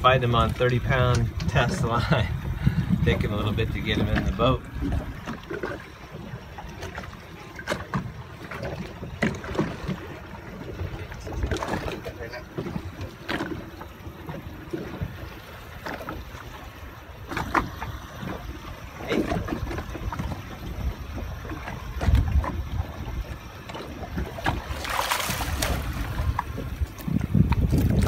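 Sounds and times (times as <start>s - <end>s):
wind noise on microphone: 0.0s - 5.5s, 17.3s - 28.0s
water against boat hull: 0.0s - 28.0s
fish splashing at surface: 24.4s - 26.5s.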